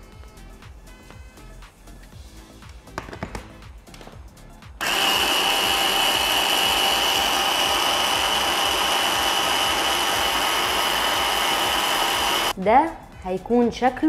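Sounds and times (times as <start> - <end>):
hand blender motor whining: 4.8 - 12.5.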